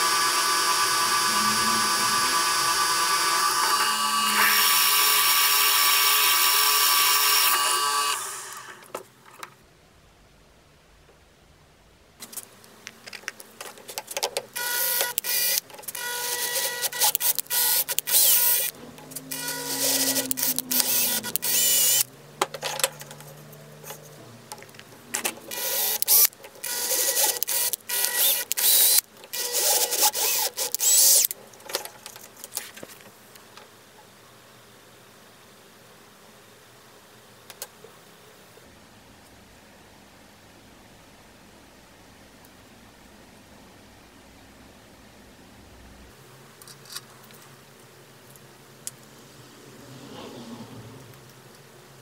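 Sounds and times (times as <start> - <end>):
metal scraping on metal: 0.4 - 4.8.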